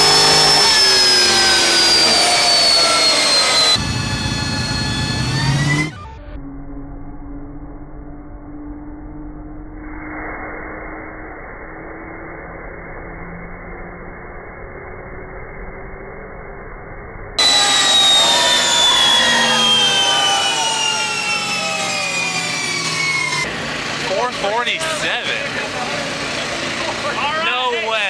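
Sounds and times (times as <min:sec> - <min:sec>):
engine revving on dyno: 0:00.0 - 0:06.4, 0:17.4 - 0:27.7
engine and dyno winding down: 0:00.0 - 0:28.0
voices: 0:24.0 - 0:28.0.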